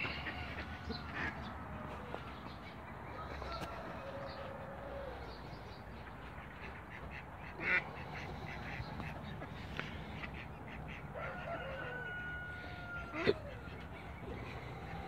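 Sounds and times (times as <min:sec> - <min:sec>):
ducks quacking: 0:00.0 - 0:15.0.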